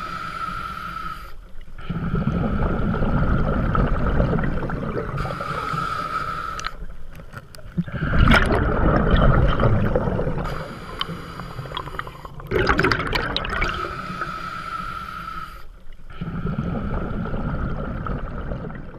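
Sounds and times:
steady hiss: 0:00.0 - 0:01.9, 0:05.1 - 0:07.2, 0:10.4 - 0:12.5, 0:13.8 - 0:16.2
underwater air bubbling: 0:01.8 - 0:18.9.

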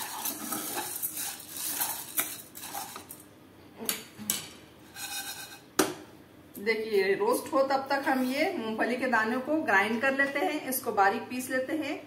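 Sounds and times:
dry pearls rattling in a pan: 0:00.0 - 0:03.2.

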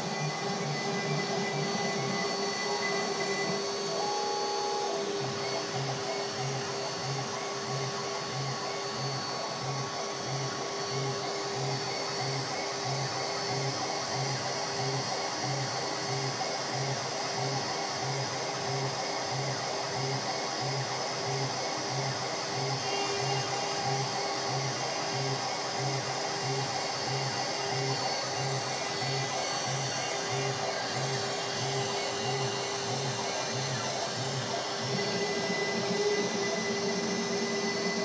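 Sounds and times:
router spindle whine: 0:00.0 - 0:38.0.

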